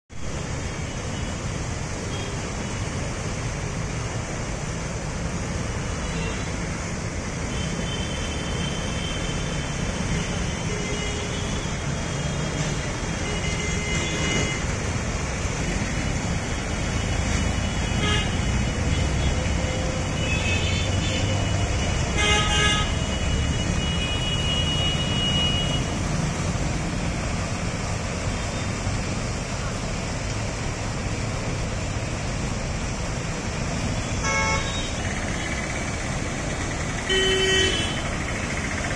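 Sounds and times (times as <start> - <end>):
car engines: 0.1 - 38.9
car horns honking: 7.6 - 14.7, 17.0 - 26.2, 34.0 - 35.0, 37.0 - 38.3.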